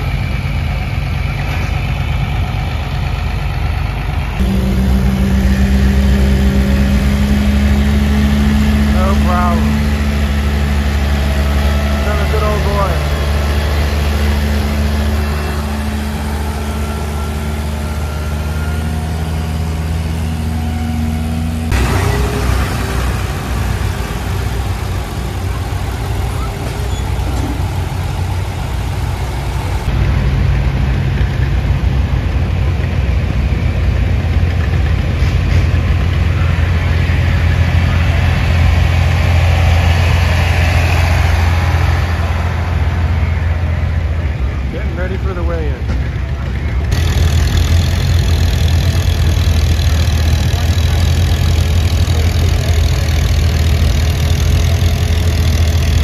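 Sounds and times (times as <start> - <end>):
tractor engine rough low drone: 0.0 - 56.0
tractor engine steady note: 0.0 - 56.0.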